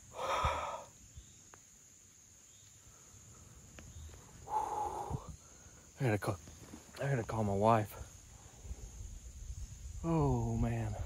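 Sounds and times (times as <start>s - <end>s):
high insect drone: 0.0s - 11.0s
man exhaling hard: 0.1s - 0.9s, 4.4s - 5.3s.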